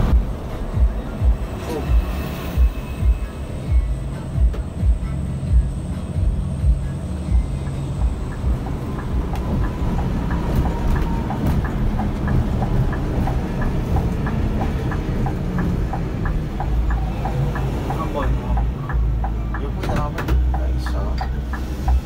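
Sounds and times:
coach engine and road rumble: 0.0 - 22.0
light regular ticking: 4.5 - 22.0.

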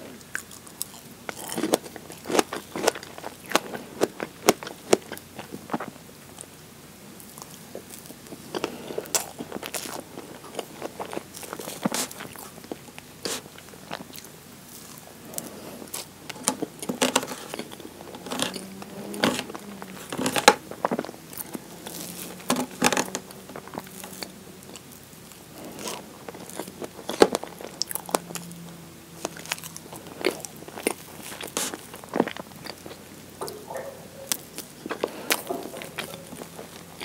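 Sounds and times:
wet chewing and lip smacks: 23.2 - 37.0.

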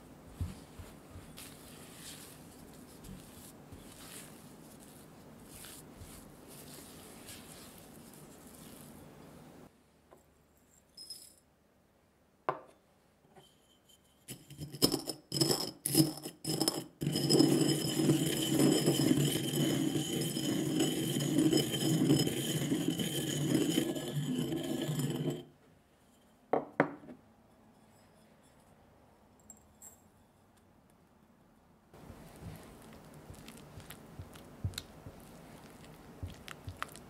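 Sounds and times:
pestle grinding in ceramic mortar: 14.3 - 25.5, 32.0 - 37.0.

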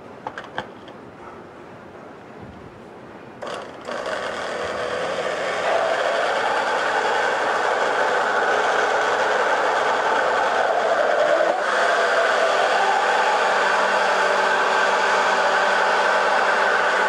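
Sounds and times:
blender motor whirring: 3.4 - 17.0.

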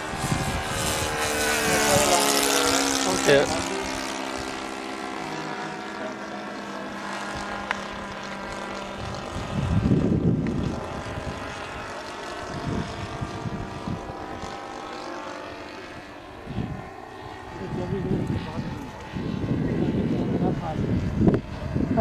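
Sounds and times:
model plane engine droning: 0.0 - 22.0
muffled low rumble: 17.5 - 22.0.

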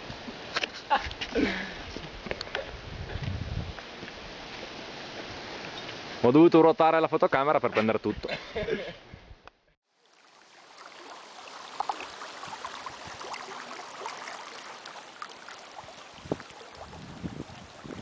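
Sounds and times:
small waves lapping on pebbles: 9.8 - 18.0.

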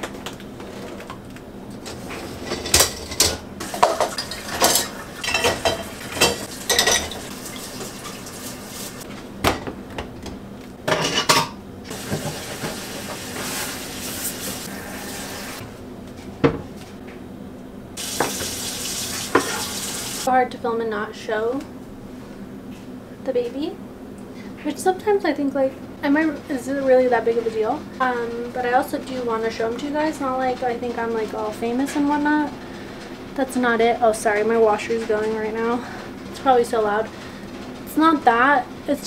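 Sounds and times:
dishwasher racks sliding: 1.8 - 9.1, 11.9 - 15.7
dishes and cutlery clattering: 2.3 - 7.9, 10.9 - 12.8
tap running: 3.6 - 10.4, 11.9 - 14.6, 18.0 - 20.3
dishwasher door shutting: 11.4 - 13.3.

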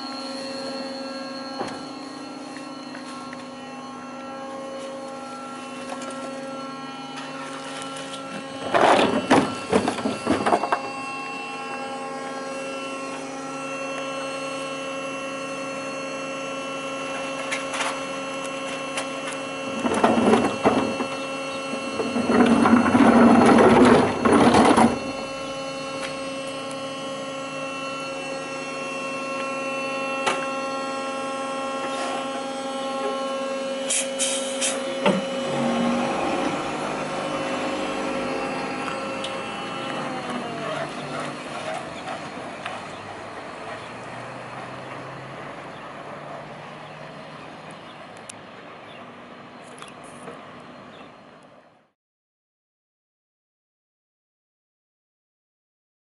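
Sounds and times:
electric truck motor hum: 0.0 - 51.9
bins rattling into truck hopper: 19.7 - 25.4.

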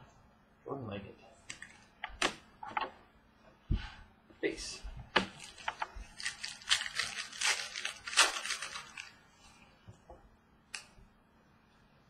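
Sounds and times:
foil wrapper crinkling: 5.3 - 9.2.

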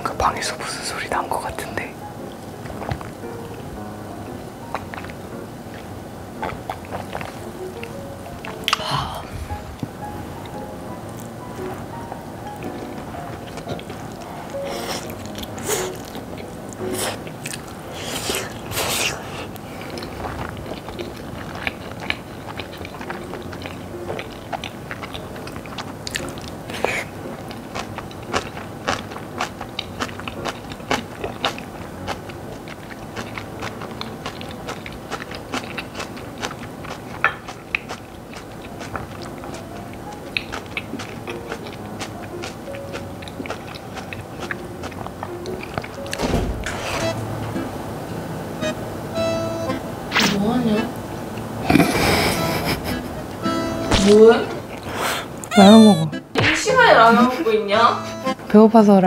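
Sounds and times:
soft background music: 0.0 - 59.0
wet chewing: 2.3 - 3.5, 4.6 - 47.1
person slurping noodles: 14.6 - 16.0, 17.9 - 20.4, 51.6 - 53.1.

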